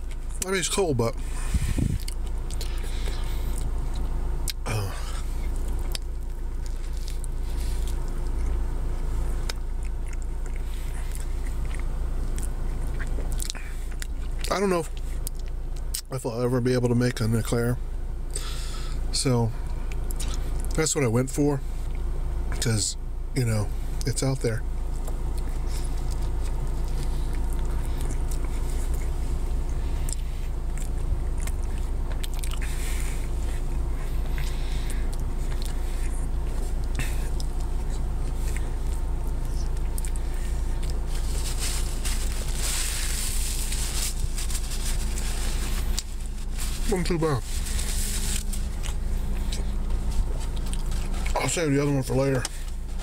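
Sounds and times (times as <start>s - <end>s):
steady low hum: 0.0s - 53.0s
person biting and chewing: 1.6s - 16.0s, 24.9s - 46.9s, 47.5s - 51.4s.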